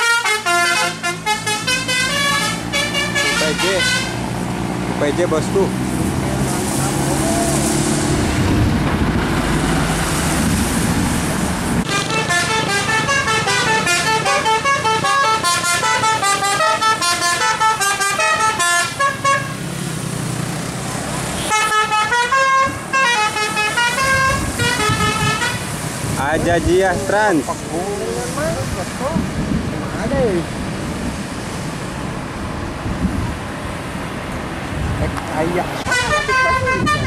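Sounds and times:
musical air horn playing a tune: 0.0 - 4.2, 11.9 - 19.6, 21.4 - 25.8, 35.9 - 37.0
bus engine running: 0.0 - 37.0.

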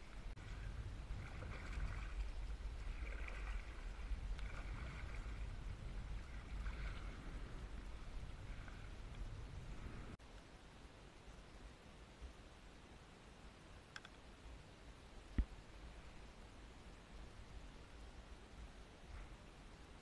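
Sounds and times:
water lapping against canoe hull: 0.0 - 10.1
steady low rumble: 0.0 - 12.9.

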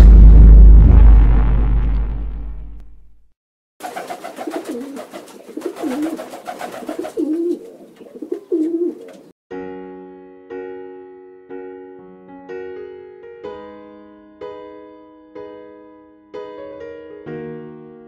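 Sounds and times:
pigeons cooing: 3.9 - 9.3
electric piano music: 9.6 - 18.0.

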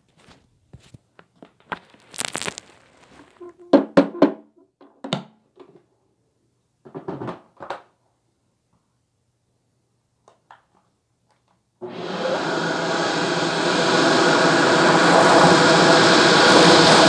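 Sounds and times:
debris rustling spill: 1.8 - 3.4.

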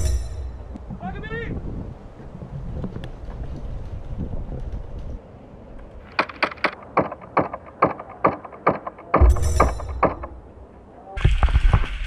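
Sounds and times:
airsoft gun shots: 6.1 - 10.3.

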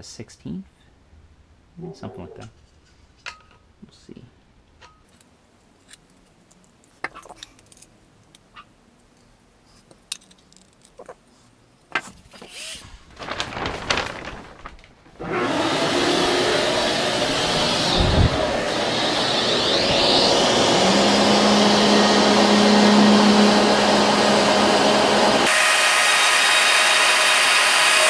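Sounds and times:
shop vacuum whirring: 15.2 - 28.0.

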